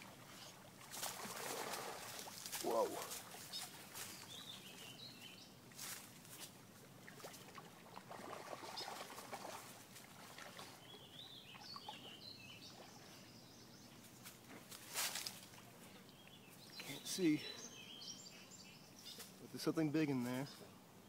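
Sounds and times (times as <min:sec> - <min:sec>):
songbird warbling: 0:15.9 - 0:19.3.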